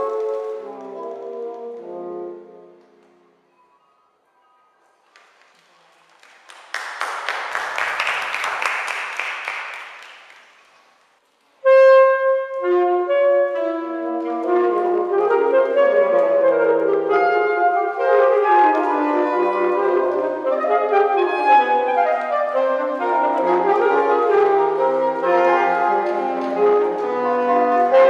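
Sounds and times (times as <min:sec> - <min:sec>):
audience applause: 0:05.1 - 0:11.0
saxophone quartet playing chords: 0:11.6 - 0:28.0.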